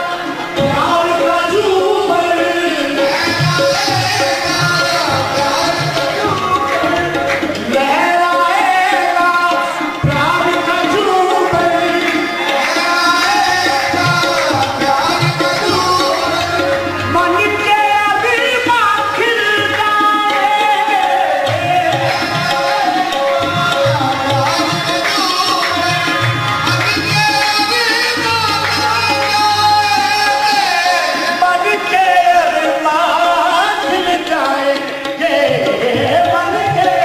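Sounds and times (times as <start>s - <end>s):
harmonium: 0.0s - 37.0s
hand drum beats: 3.0s - 31.1s.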